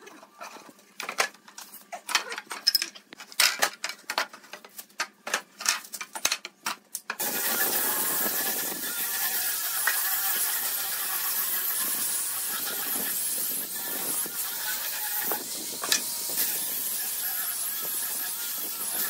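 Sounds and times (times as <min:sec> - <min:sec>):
angle grinder motor whine: 0:07.2 - 0:19.0
sanding disc hissing on wood: 0:07.2 - 0:19.0.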